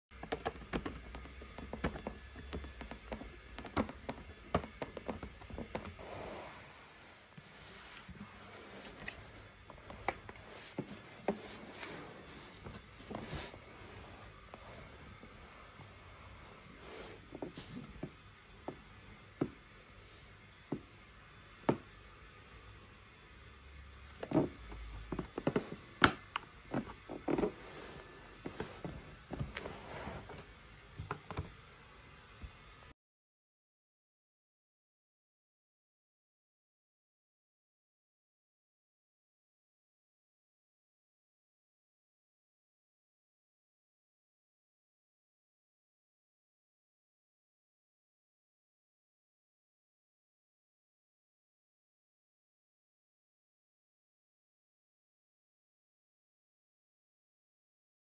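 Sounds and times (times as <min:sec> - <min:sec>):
rubbing and rustling: 0:00.2 - 0:16.0, 0:26.6 - 0:30.5.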